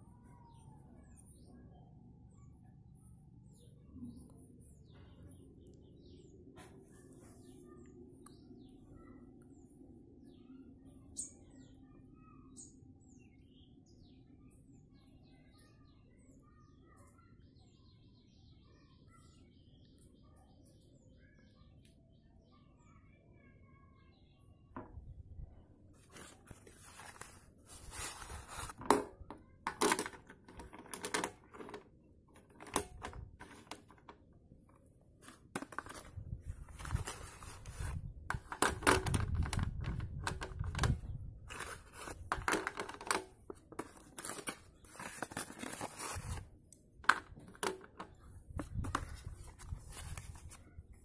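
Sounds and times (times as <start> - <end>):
cardboard packet tearing and rustling: 26.1 - 28.8, 44.0 - 46.5
slate pencils clicking on a plate: 29.7 - 34.2.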